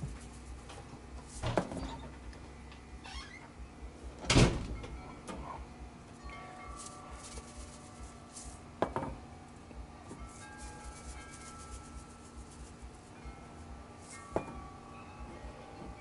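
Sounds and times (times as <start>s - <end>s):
ringing tones: 4.8s - 8.7s, 10.2s - 16.0s.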